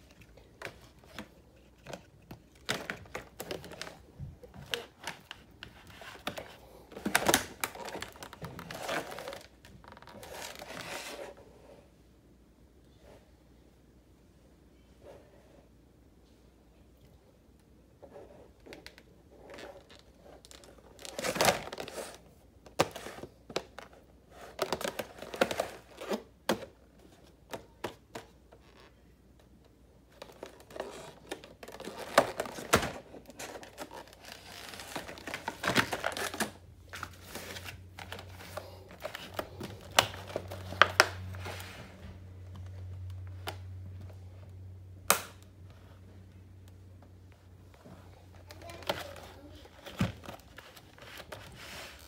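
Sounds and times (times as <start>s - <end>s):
plastic packaging crinkling: 0.0s - 11.1s, 30.1s - 41.7s.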